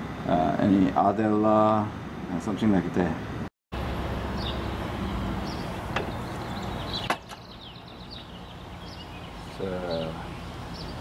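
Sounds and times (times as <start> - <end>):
birds chirping: 3.8 - 11.0.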